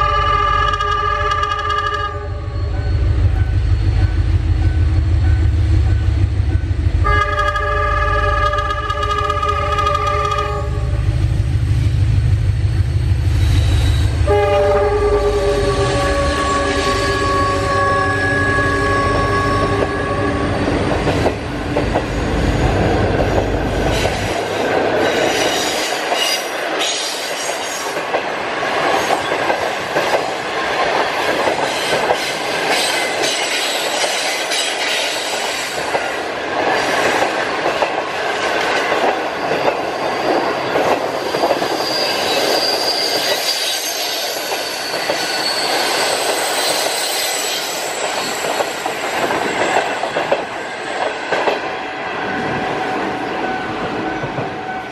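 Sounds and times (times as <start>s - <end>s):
train horn chord: 0.0s - 2.8s, 7.0s - 11.0s, 14.2s - 20.6s
high wheel squeal: 13.2s - 14.2s, 15.0s - 20.6s, 39.3s - 49.8s
train wheels clacking over rail joints: 23.1s - 45.2s, 45.9s - 51.7s.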